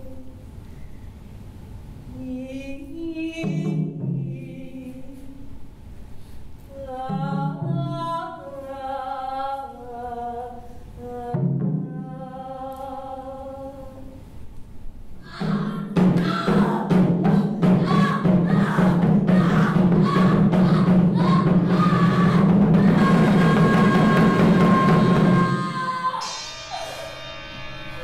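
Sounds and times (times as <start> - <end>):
voices singing wordless held tones: 15.2 - 27.2.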